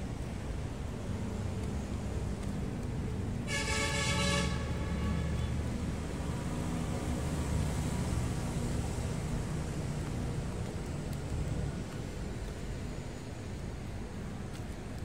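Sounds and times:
distant city traffic: 0:00.0 - 0:15.0
horn sounding: 0:03.5 - 0:05.5.

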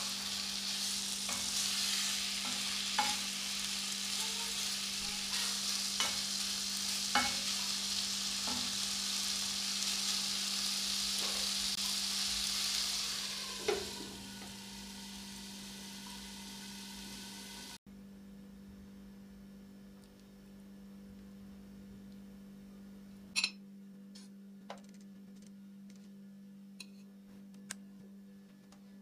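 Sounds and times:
chicken sizzling in a frying pan: 0:00.0 - 0:17.8.

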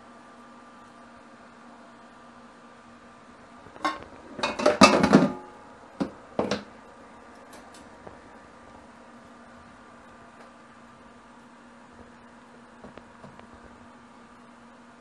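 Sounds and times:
metal plate clattering in sink: 0:03.8 - 0:05.4.

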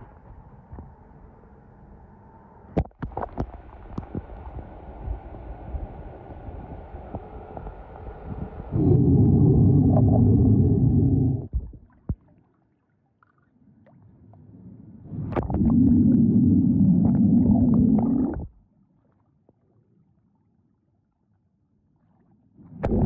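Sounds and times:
muffled underwater churning: 0:02.8 - 0:12.5, 0:13.6 - 0:18.7, 0:22.7 - 0:23.0.

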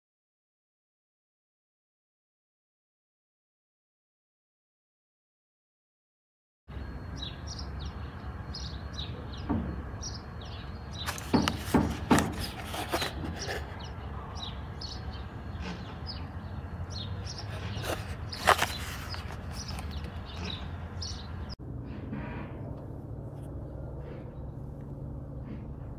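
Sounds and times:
birds chirping: 0:06.7 - 0:21.6
blister pack crackling: 0:17.4 - 0:20.5
steady low rumble: 0:19.0 - 0:25.9.

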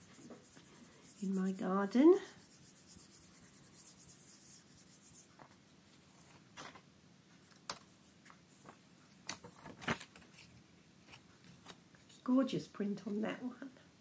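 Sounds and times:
hand rubbing across paper: 0:00.0 - 0:06.2.

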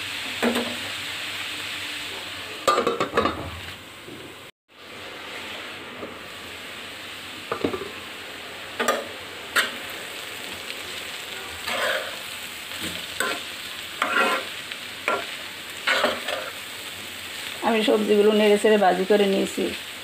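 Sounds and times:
vegetables sizzling in a pan: 0:00.0 - 0:20.0
scrapes against a pan: 0:11.6 - 0:12.2, 0:12.9 - 0:15.2, 0:15.8 - 0:16.6.

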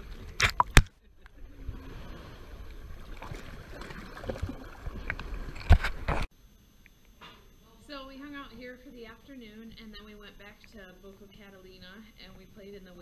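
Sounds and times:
water sloshing and splashing: 0:00.0 - 0:06.3.

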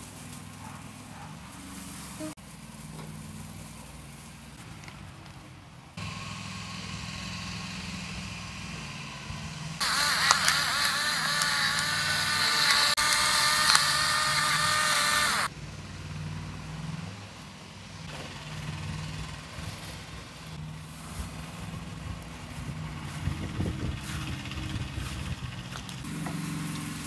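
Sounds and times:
electric pepper grinder running: 0:09.8 - 0:15.5.

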